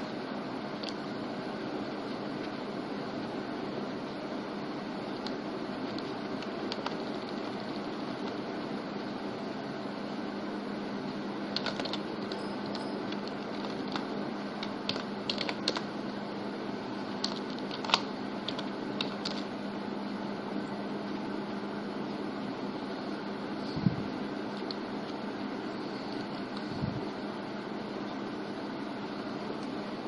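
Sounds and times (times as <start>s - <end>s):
steady low hum: 0.0s - 30.0s
keyboard keys clicking: 5.2s - 8.4s, 11.5s - 15.9s, 17.2s - 19.5s.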